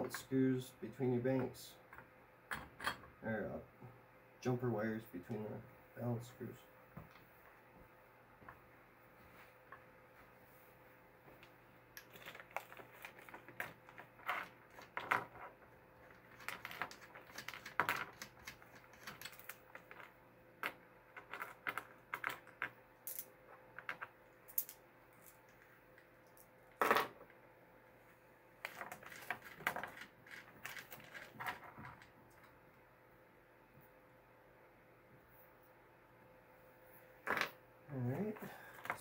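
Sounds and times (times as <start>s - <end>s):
nuts and bolts clinking: 28.6s - 32.5s.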